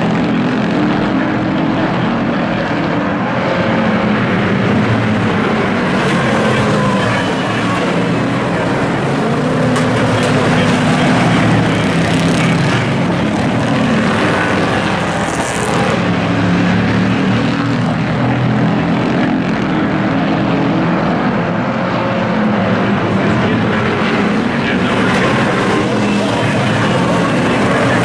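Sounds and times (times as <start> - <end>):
racing truck engines droning: 0.0 - 28.0.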